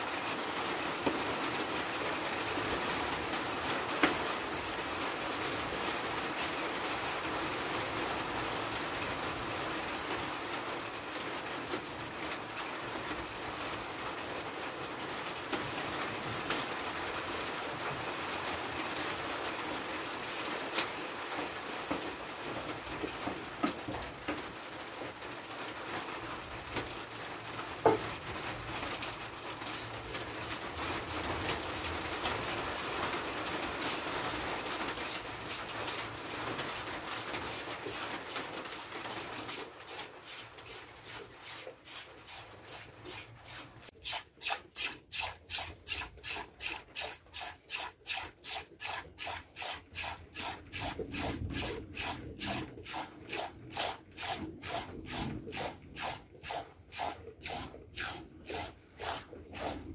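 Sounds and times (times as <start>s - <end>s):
milk squirting into a steel bowl: 39.5s - 59.9s.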